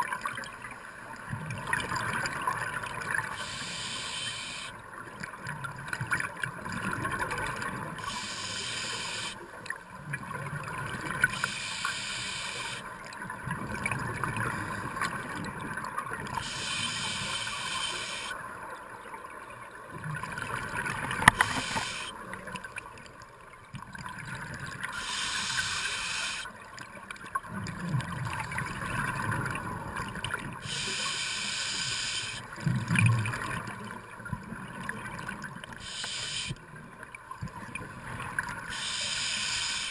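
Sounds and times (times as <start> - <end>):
regulator hissing inhale: 3.4 - 4.7, 8.0 - 9.4, 11.3 - 12.8, 16.4 - 18.4, 21.3 - 22.1, 24.9 - 26.5, 30.6 - 32.4, 35.8 - 36.6, 38.7 - 39.9.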